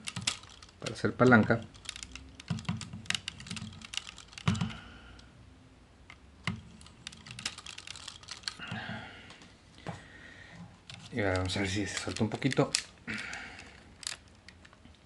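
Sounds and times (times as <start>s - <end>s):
plastic parts clicking and knocking: 0.0s - 4.9s, 6.1s - 8.9s, 10.8s - 15.0s.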